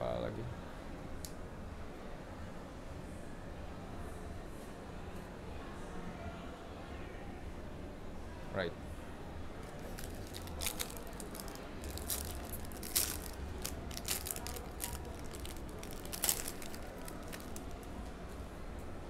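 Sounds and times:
wrapper crinkling and tearing: 9.6 - 18.0.

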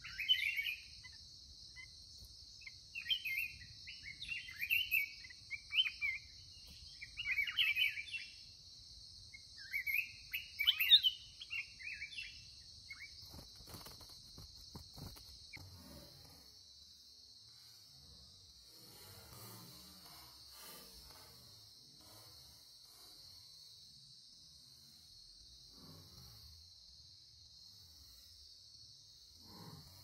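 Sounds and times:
birds singing warbled phrases: 0.0 - 2.0, 2.6 - 8.5, 9.4 - 13.4
high insect drone: 0.0 - 30.0.

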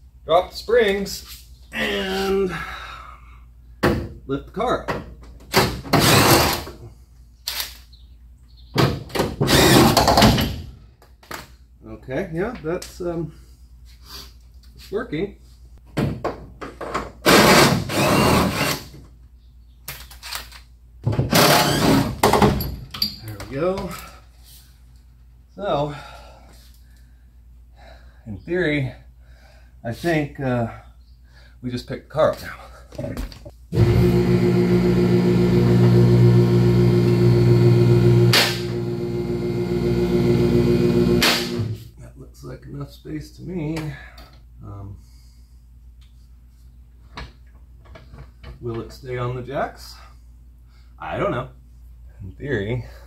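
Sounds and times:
hydraulic lift motor humming: 33.7 - 41.8.

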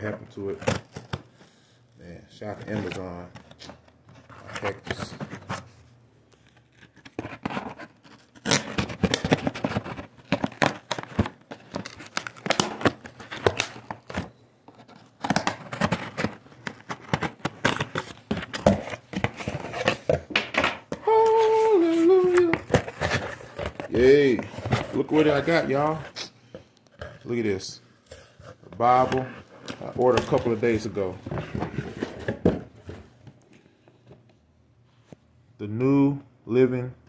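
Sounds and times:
cardboard flaps tearing: 6.7 - 20.1.

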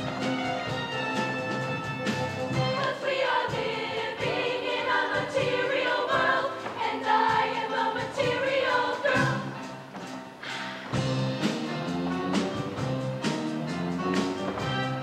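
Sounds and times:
choir singing: 2.5 - 10.0.

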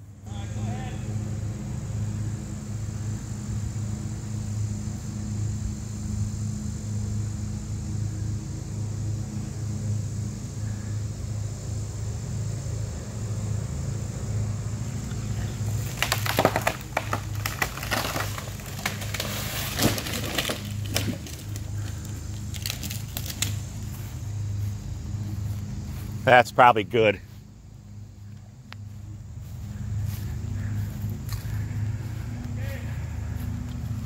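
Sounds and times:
engine drone: 0.0 - 34.0
branches crashing: 15.3 - 24.1
wood cracking and splintering: 15.6 - 23.6.

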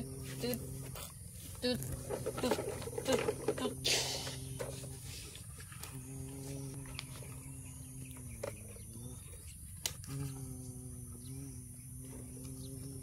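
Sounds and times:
person humming a low drone: 5.8 - 9.4, 10.0 - 13.0.

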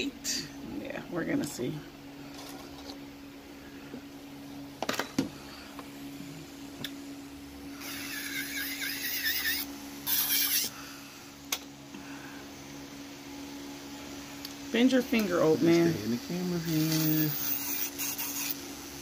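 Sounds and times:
electric nail drill humming: 7.6 - 11.0, 13.3 - 19.0
drill bit grinding nail: 7.8 - 10.8, 16.7 - 18.6.

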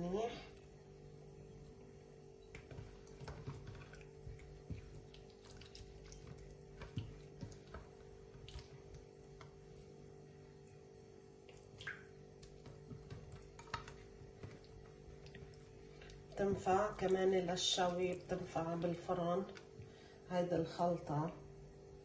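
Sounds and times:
faint steady hum: 0.0 - 22.0
hands squelching raw chicken: 2.4 - 10.0, 11.4 - 20.0.

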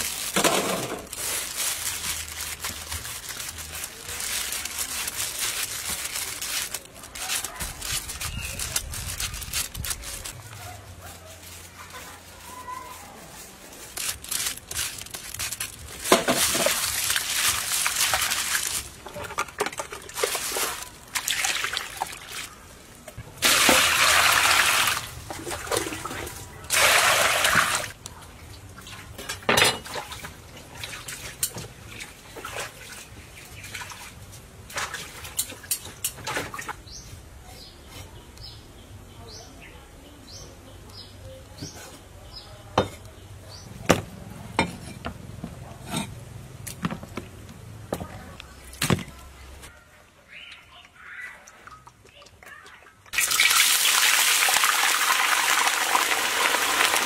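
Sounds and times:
water sloshing in a basin: 13.4 - 36.9, 50.3 - 57.0.

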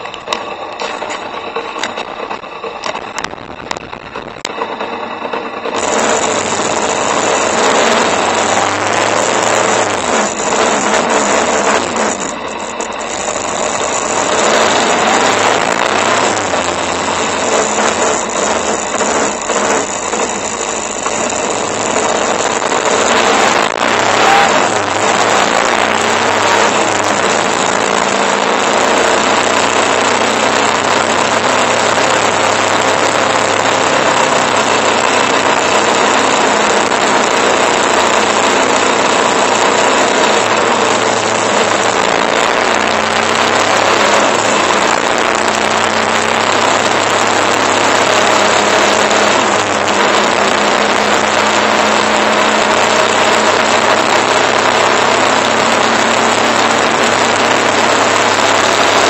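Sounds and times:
motorcycle engine running: 0.0 - 59.0
wind rushing over microphone: 1.8 - 4.6.

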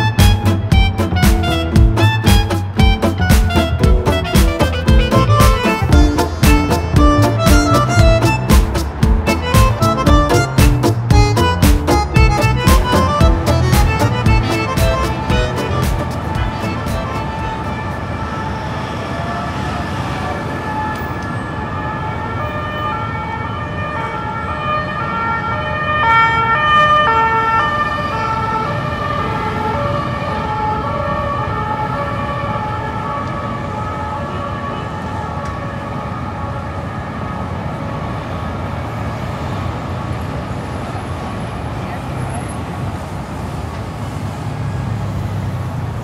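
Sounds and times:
street traffic: 0.0 - 46.0
two-tone emergency siren: 16.7 - 39.4.

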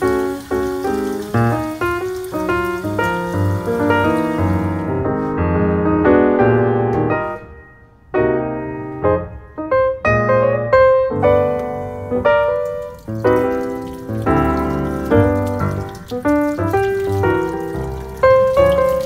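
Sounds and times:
sink faucet running: 0.0 - 5.0, 11.2 - 19.0
piano music: 0.0 - 19.0.

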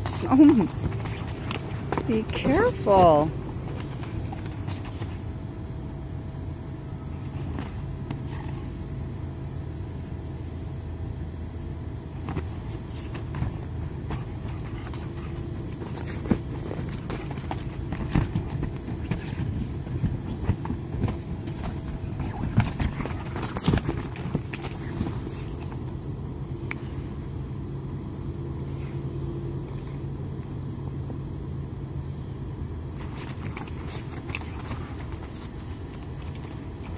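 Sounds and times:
paws tapping on inflated vinyl: 0.0 - 5.3, 12.2 - 25.9.

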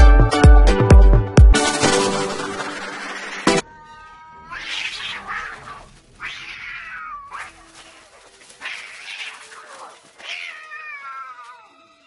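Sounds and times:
cats yowling: 3.2 - 12.0.

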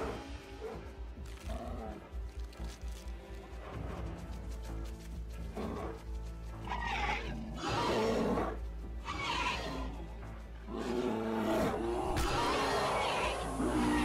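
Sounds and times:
animals snarling and roaring: 0.0 - 2.2, 5.4 - 14.0
background music: 0.0 - 14.0.

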